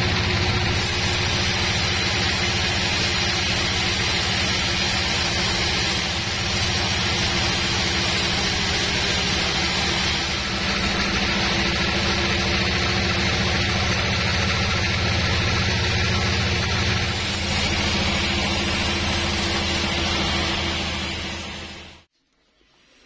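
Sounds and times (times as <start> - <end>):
diesel engine droning: 0.0 - 22.0
band saw blade hissing through wood: 0.7 - 12.4, 17.0 - 22.1.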